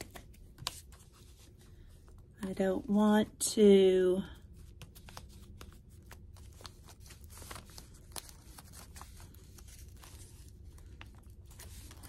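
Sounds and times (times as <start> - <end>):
paper rustling and tapping: 0.0 - 1.2.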